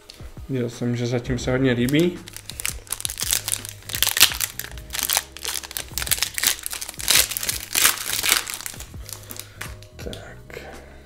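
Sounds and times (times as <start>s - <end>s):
plastic foil wrapper crinkling: 1.9s - 9.9s.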